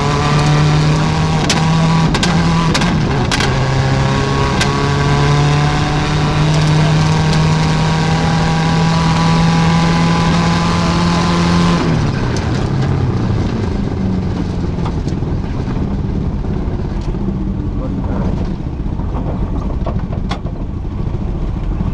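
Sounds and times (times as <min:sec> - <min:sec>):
rally car engine revving: 0:00.0 - 0:21.9
exhaust pops: 0:00.3 - 0:03.8, 0:11.8 - 0:21.9.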